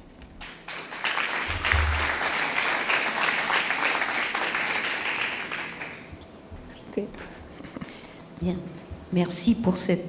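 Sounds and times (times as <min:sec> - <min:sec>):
audience applauding: 0:00.4 - 0:06.1.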